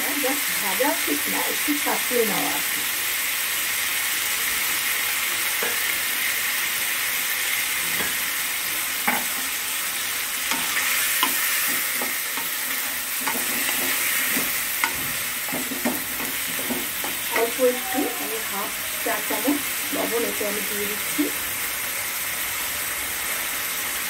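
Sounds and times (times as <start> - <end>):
chicken sizzling in hot oil: 0.0 - 24.0
spatula clicking and scraping: 10.4 - 17.6.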